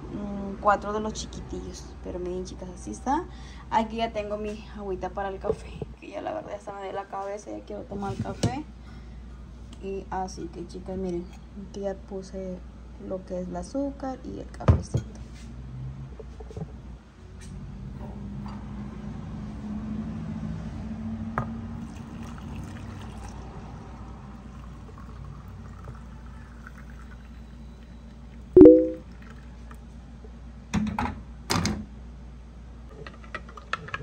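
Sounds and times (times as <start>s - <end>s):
water pouring into mug: 21.8s - 29.8s.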